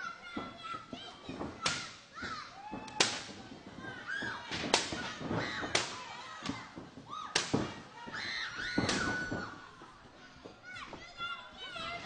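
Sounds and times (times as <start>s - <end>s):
sharp cracking smacks of blows: 1.6s - 2.0s, 2.9s - 3.4s, 4.5s - 6.6s, 7.3s - 7.8s, 8.8s - 9.3s.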